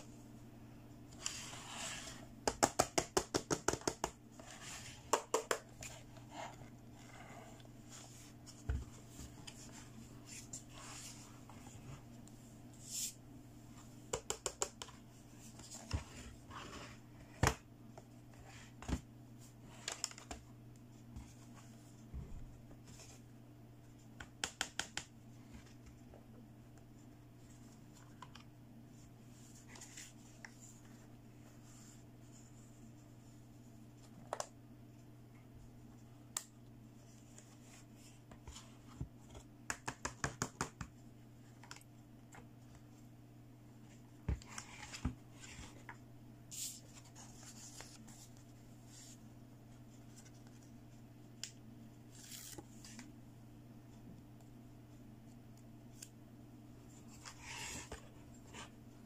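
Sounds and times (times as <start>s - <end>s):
plastic taps and knocks: 2.4s - 4.2s.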